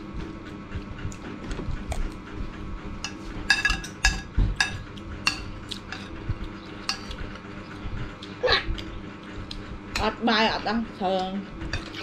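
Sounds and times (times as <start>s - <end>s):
spoons clinking on plates: 3.1s - 6.1s.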